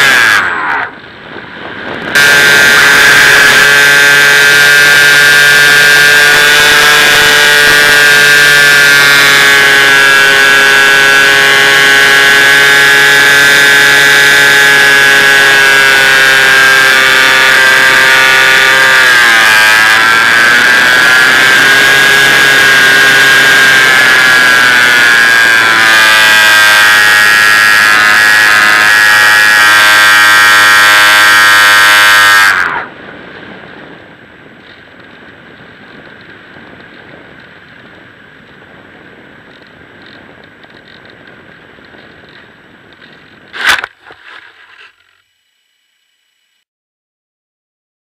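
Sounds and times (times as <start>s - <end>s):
model plane motor whine: 0.0s - 1.0s, 2.1s - 33.0s, 43.0s - 46.6s.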